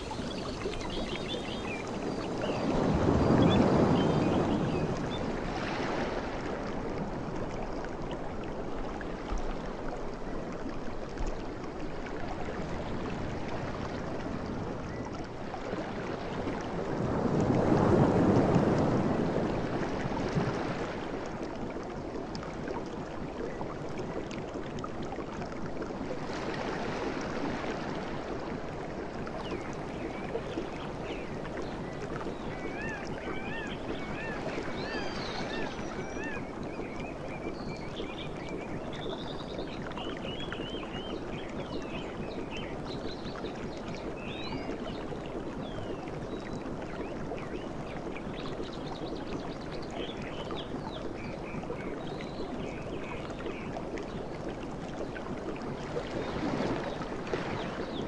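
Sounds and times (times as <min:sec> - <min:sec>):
sea surf washing onto beach: 0:00.0 - 0:07.3, 0:16.4 - 0:21.3.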